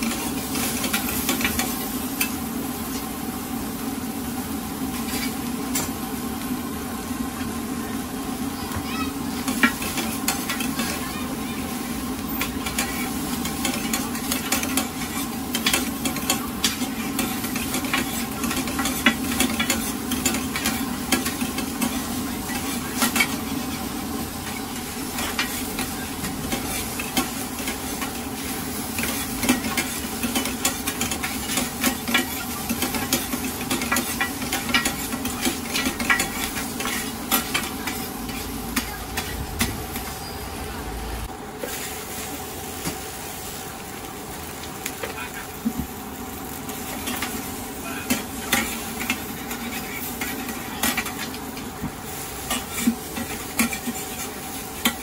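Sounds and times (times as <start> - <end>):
food sizzling in hot oil: 0.0 - 55.0
metal spatula scraping a wok: 4.9 - 5.4, 52.3 - 55.0.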